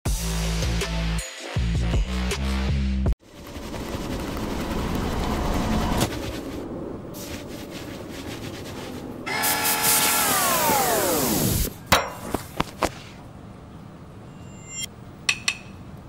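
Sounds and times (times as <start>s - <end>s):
hose wand hissing jet: 7.2s - 11.7s
high whine: 9.3s - 11.7s, 14.2s - 15.0s.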